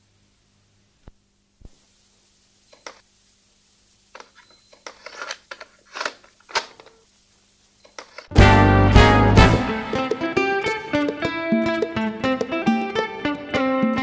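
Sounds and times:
plastic clicks of cassette loading: 4.2 - 7.0, 7.9 - 8.3.

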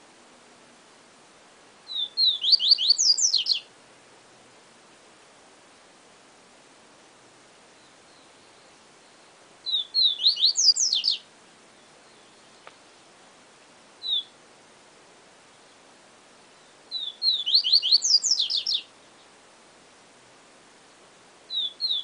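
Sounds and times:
steady hiss: 0.0 - 22.0
bird whistling falling notes: 16.9 - 18.8.

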